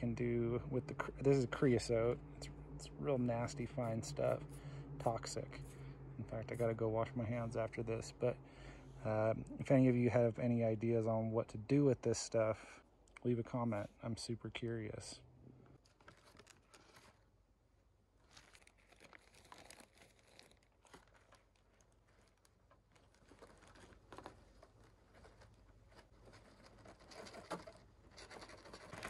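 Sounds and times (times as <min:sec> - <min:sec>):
cardboard rustling: 0:15.8 - 0:17.3, 0:18.2 - 0:29.0
plastic bag crinkling: 0:15.8 - 0:17.4, 0:18.2 - 0:29.0.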